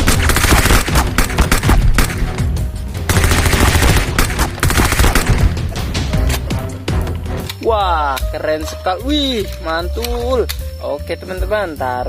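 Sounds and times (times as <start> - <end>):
machine-gun fire: 0.0 - 2.4, 3.1 - 5.7
background music: 0.0 - 12.0.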